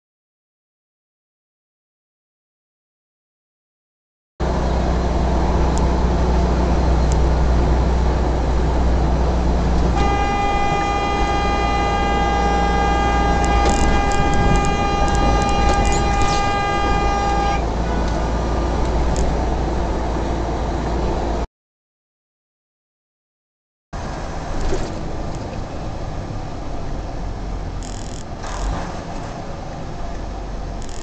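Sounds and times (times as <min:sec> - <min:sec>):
truck engine and road drone: 0:04.4 - 0:21.5, 0:24.0 - 0:31.0
truck horn long blast: 0:09.7 - 0:19.2.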